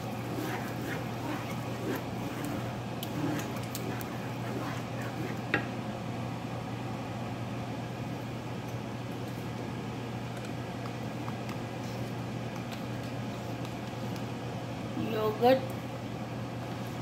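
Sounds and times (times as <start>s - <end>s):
wooden spatula stirring: 0.0s - 5.6s.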